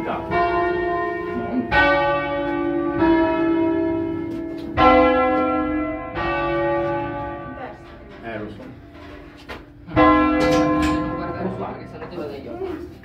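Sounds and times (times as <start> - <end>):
church bells ringing: 0.0 - 8.4, 9.8 - 12.4.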